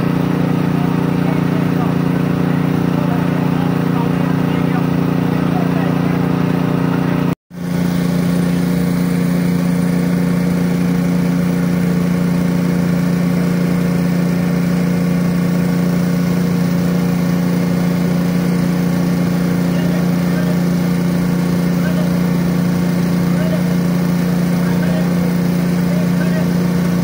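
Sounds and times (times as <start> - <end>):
engine running steadily: 0.0 - 27.0.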